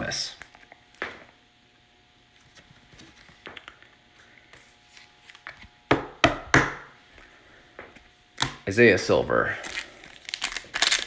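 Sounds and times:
faint steady hum: 0.0 - 11.0
trading cards being handled: 9.6 - 11.0.

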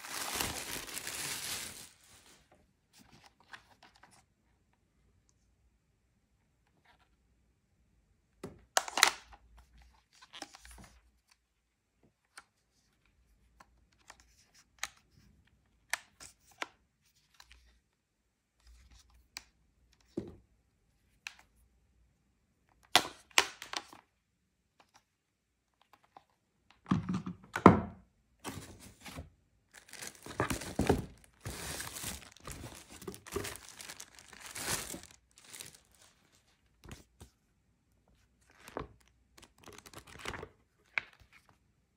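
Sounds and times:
packaging and paper rustling: 0.0 - 2.5, 28.5 - 37.1, 38.5 - 40.5.

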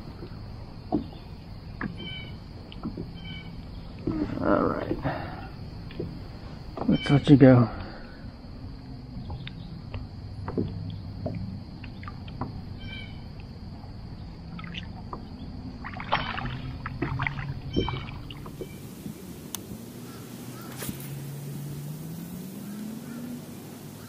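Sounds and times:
gear clattering against kayak hull: 0.0 - 7.1
small water splash: 10.4 - 12.6, 14.4 - 24.0.

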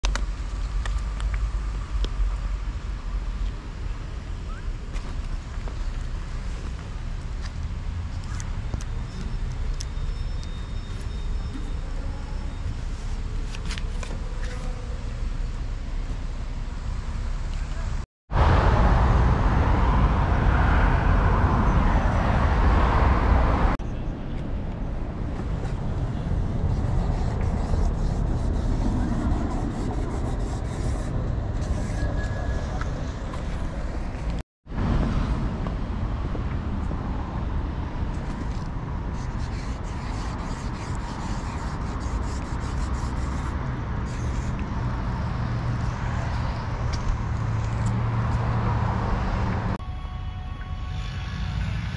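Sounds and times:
traffic rumble: 0.0 - 51.9
cars driving past: 18.3 - 29.6, 43.4 - 49.8
marker scratching on metal: 26.6 - 32.8, 38.5 - 44.7.

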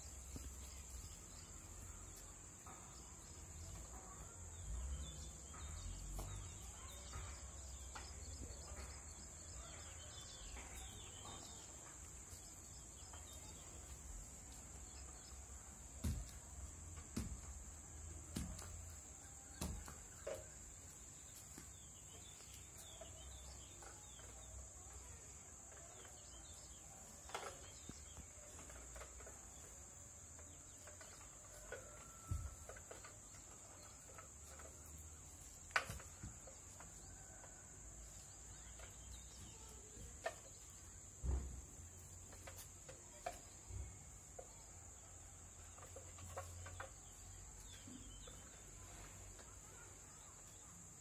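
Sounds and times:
soft thumps and knocks: 15.0 - 20.8.

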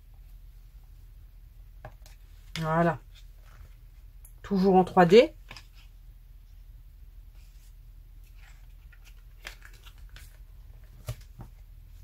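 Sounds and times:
paper rustling: 7.4 - 11.6.

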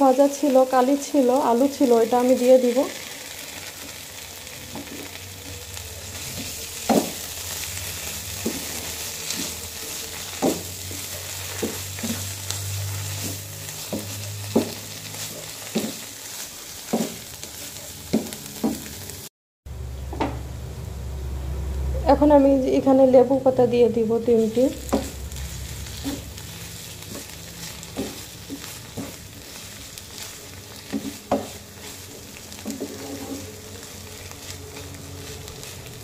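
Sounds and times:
vegetables sizzling in a frying pan: 0.0 - 19.3, 21.5 - 36.0
wooden spatula scraping a pan: 4.6 - 19.0, 24.4 - 36.0.

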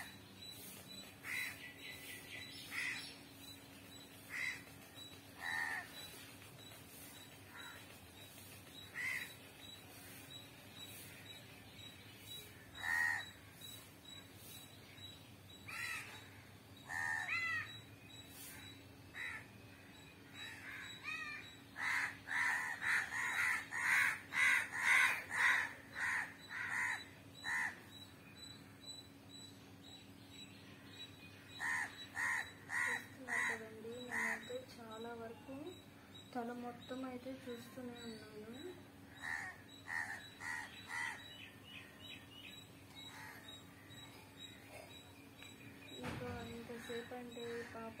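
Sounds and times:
crow cawing: 4.3 - 4.6, 5.4 - 6.0, 8.9 - 9.3, 12.8 - 13.3, 15.7 - 16.2, 16.9 - 17.7, 19.2 - 19.5, 20.4 - 27.8, 31.6 - 34.4, 39.1 - 41.2, 43.1 - 43.5.

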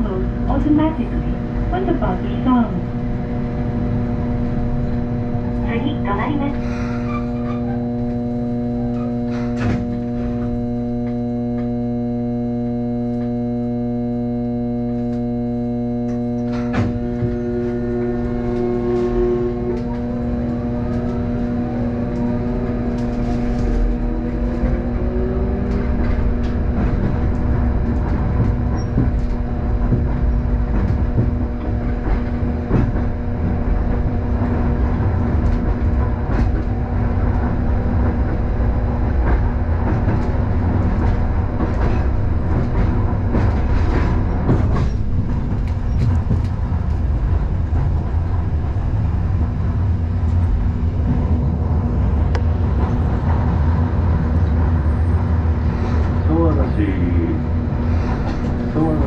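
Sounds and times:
electrical hum: 0.0 - 59.0
tram motor whine rising: 0.0 - 59.0
wheels running on rails: 0.0 - 59.0
track clicks: 3.3 - 48.1.

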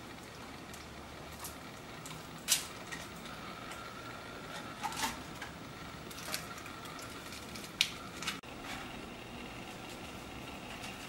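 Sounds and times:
faint background hum: 0.0 - 11.0.

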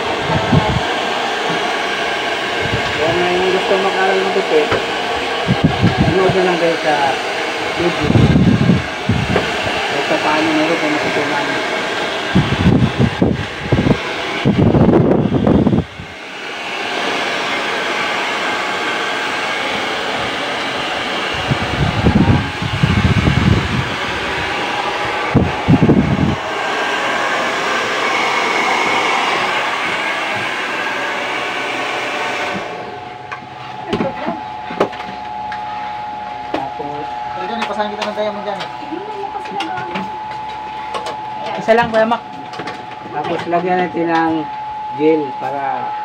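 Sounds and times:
hair dryer blowing: 0.0 - 46.0
steady hum: 0.0 - 46.0.

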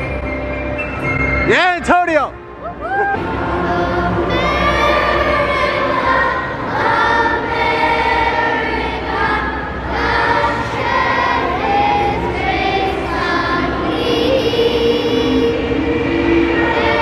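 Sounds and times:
children's choir singing: 3.2 - 17.0.

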